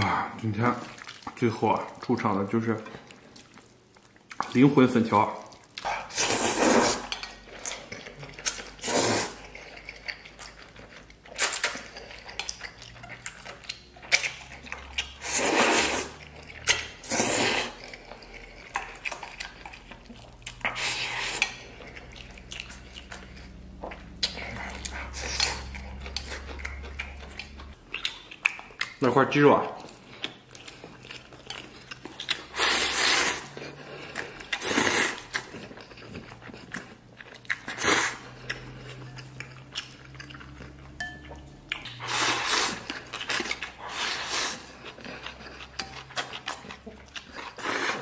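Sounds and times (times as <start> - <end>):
loud slurping of noodles: 6.0 - 7.1, 8.8 - 9.4, 15.2 - 16.2, 17.0 - 17.8, 32.5 - 33.5, 34.6 - 35.3, 37.7 - 38.3, 42.0 - 42.9, 43.8 - 44.8
chopsticks clinking against bowl: 41.0 - 41.5.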